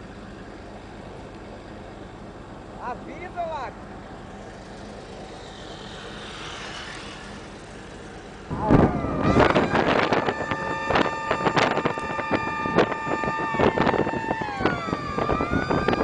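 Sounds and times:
wind and road noise: 0:00.0 - 0:16.0
high-pitched tones: 0:08.5 - 0:16.0.

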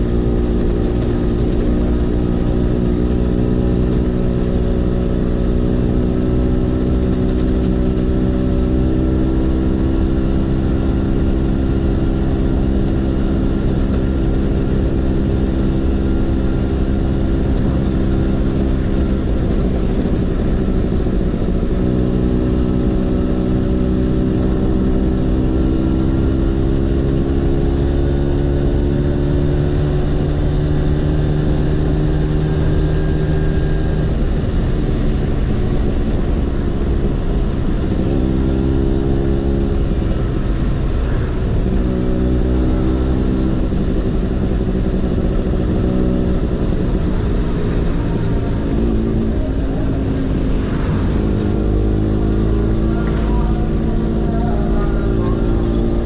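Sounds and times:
two-stroke scooter engine running: 0:00.0 - 0:56.0.

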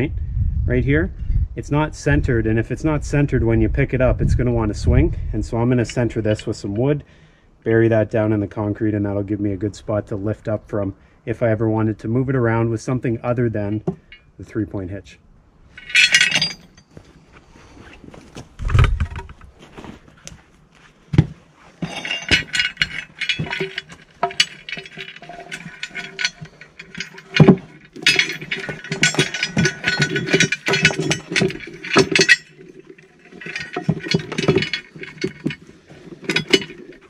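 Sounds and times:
steel chain clinking and rattling: 0:13.7 - 0:14.4, 0:15.7 - 0:17.1, 0:21.8 - 0:37.0.

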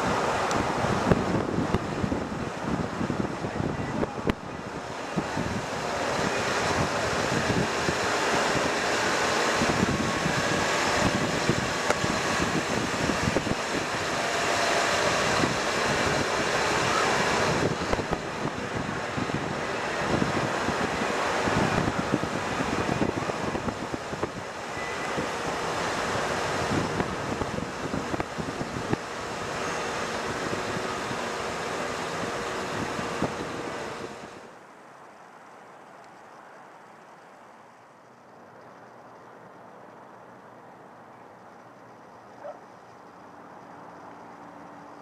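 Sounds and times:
gusty rumble: 0:00.0 - 0:34.5
wind buffeting microphone: 0:00.0 - 0:34.5.

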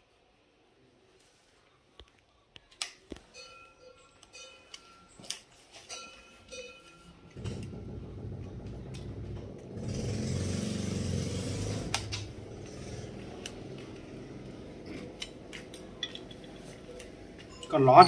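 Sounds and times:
vehicle engine running: 0:07.4 - 0:17.4.

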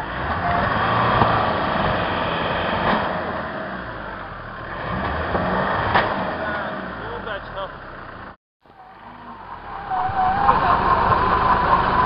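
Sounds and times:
engine revving under load: 0:00.0 - 0:12.0
wheels churning through slush: 0:09.7 - 0:12.0.

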